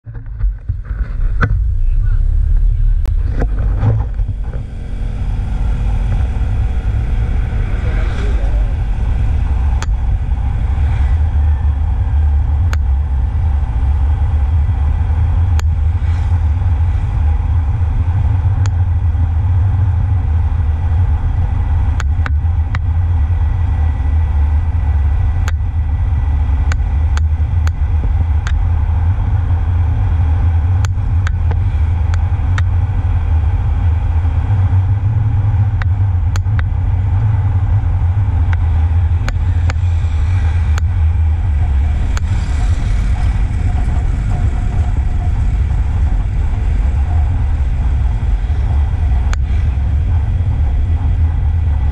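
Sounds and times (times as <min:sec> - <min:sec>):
wind and road noise: 0:00.0 - 0:51.9
scooter engine: 0:00.4 - 0:51.9.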